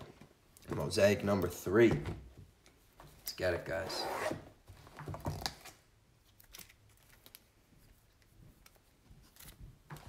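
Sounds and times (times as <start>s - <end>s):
trading cards rustling: 5.3s - 10.0s.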